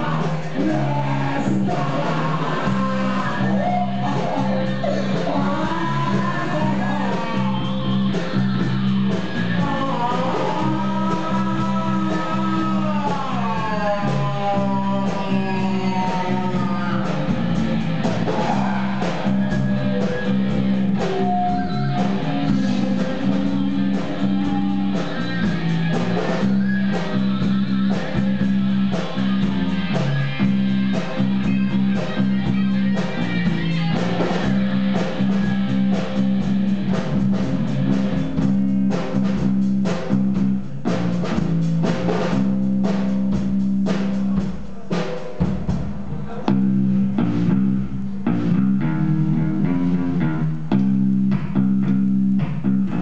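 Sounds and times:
rock music with electric guitar: 0.0s - 44.3s, 46.6s - 53.0s
bass line: 0.0s - 53.0s.

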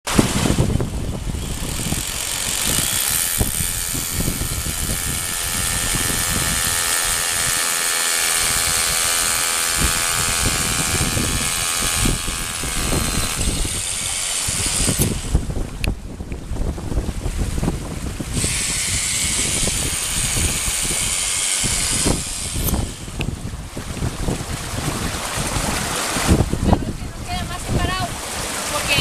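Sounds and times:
fast stream rushing: 0.1s - 29.0s
power drill boring into rock: 1.1s - 16.0s, 18.2s - 23.4s.

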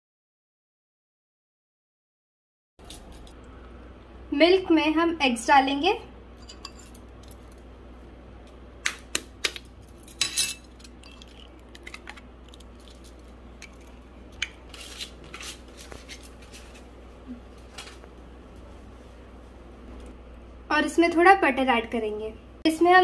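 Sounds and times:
utensils clinking against dishes: 6.4s - 7.4s, 9.9s - 11.5s.

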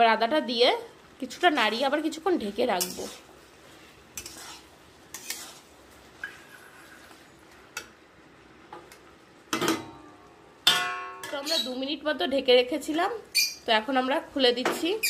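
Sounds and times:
metal spatula scraping pan: 2.4s - 7.2s.

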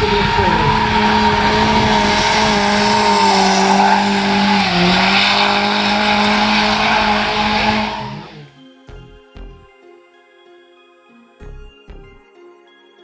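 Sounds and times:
car engine at high revs: 0.0s - 8.5s.

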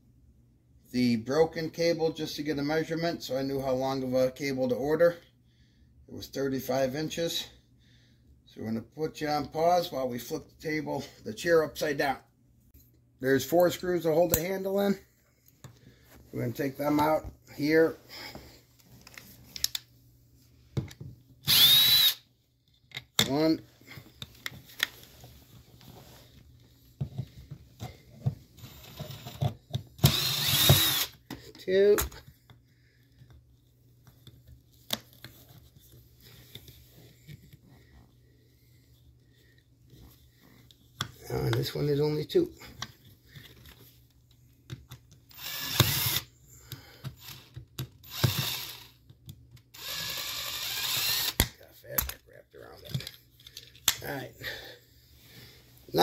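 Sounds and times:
cordless drill running: 21.4s - 22.2s, 30.0s - 31.2s, 45.3s - 46.3s, 47.2s - 49.0s, 49.7s - 51.5s.

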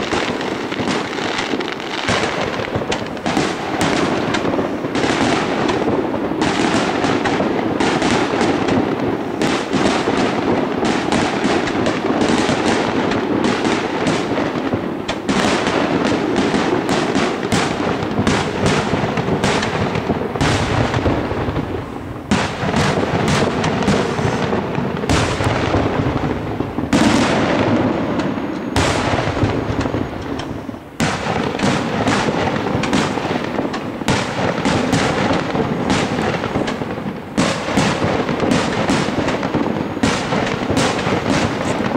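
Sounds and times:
fireworks bursting: 0.0s - 41.9s.

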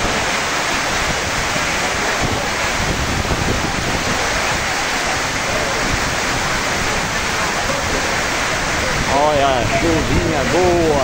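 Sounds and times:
heavy rain pouring: 0.0s - 11.0s
wind buffeting microphone: 0.0s - 11.0s.

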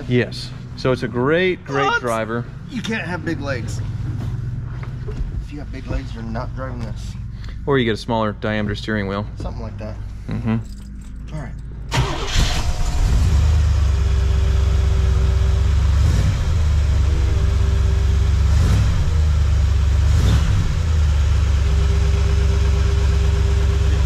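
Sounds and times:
car engine starting and idling: 9.8s - 24.0s
engine throttle blips: 11.9s - 24.0s.

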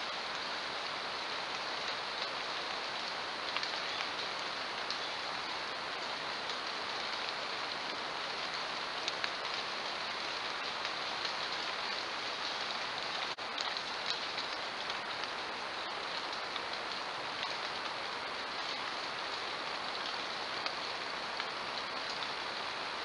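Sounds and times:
steady hiss: 0.0s - 23.0s
faint ticks: 3.0s - 5.1s, 9.0s - 9.6s, 18.6s - 22.4s.

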